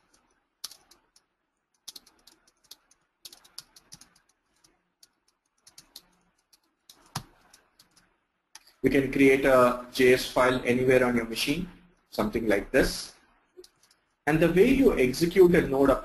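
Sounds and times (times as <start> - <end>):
computer keyboard typing: 0.0 - 8.8, 13.6 - 14.2.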